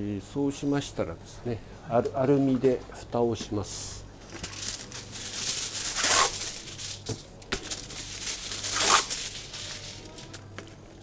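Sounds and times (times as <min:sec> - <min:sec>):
aluminium foil crinkling and tearing: 0:04.2 - 0:10.8.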